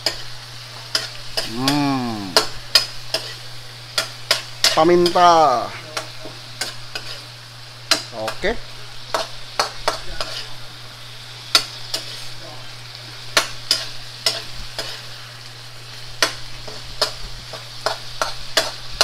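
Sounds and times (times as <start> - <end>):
shrimp sizzling in a wok: 0.0 - 19.0
metal spatula scraping a wok: 2.4 - 5.2, 6.6 - 7.3, 9.2 - 10.6, 11.5 - 12.5, 13.3 - 15.2.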